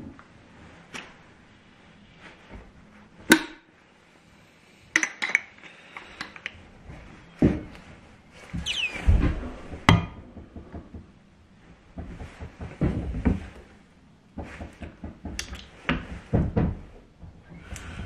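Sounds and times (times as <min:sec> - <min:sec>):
brief squeak: 0:08.6 - 0:09.1.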